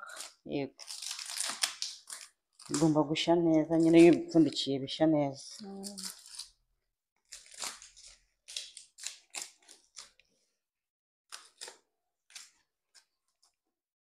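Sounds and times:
banana leaves crinkling and rustling: 0.0s - 3.0s, 5.8s - 6.5s, 7.3s - 10.2s.

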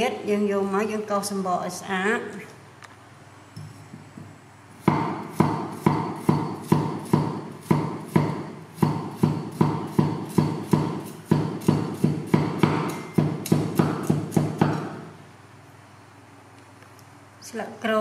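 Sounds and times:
cleaver chopping on wooden block: 4.8s - 15.0s.

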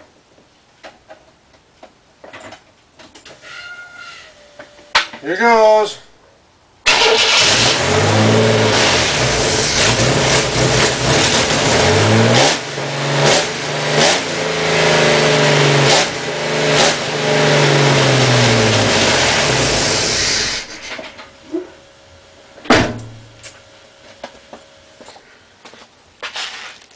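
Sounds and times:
car engine starting and revving: 6.9s - 20.9s.

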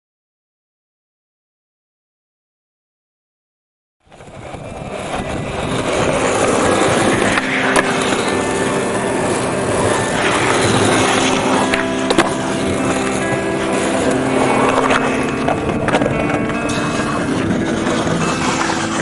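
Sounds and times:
skateboard wheels rolling on concrete: 4.0s - 19.0s
skateboard clacks: 4.1s - 19.0s
music with sustained notes: 4.4s - 19.0s.

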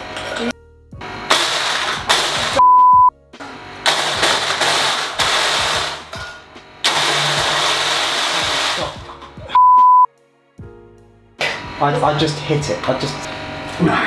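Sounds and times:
blender crushing ice: 1.2s - 2.6s, 3.4s - 9.2s
loud beep tone: 2.6s - 3.1s, 9.6s - 10.1s.

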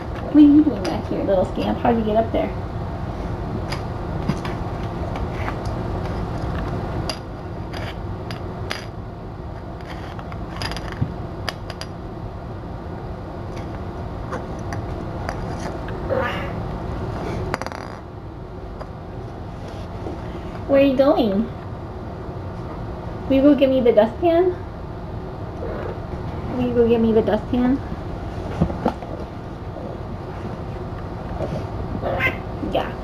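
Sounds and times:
low background hum: 0.0s - 33.0s.

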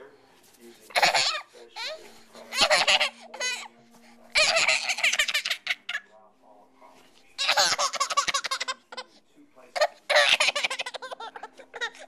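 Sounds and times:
toddler giggling: 7.4s - 9.1s, 9.8s - 12.0s.

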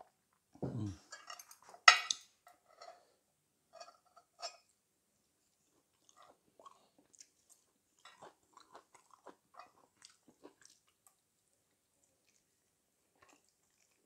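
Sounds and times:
person chewing and biting food: 5.9s - 11.2s, 13.1s - 14.0s.

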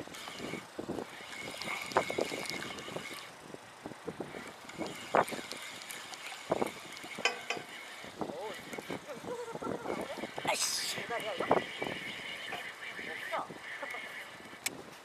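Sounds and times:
fishing reel cranking: 0.0s - 14.8s
wind buffeting microphone: 0.0s - 15.0s
reel clicks and knocks: 4.3s - 9.0s, 11.2s - 14.8s.

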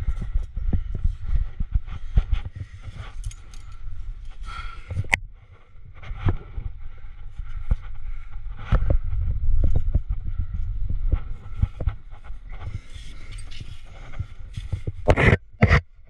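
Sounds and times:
wind buffeting microphone: 0.0s - 15.8s
climbing gear clicking: 2.2s - 5.2s.

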